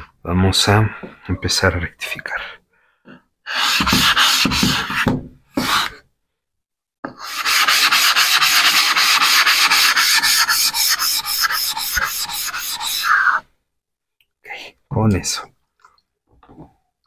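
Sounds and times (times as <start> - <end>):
plate rubbing on water stone: 7.2 - 13.4.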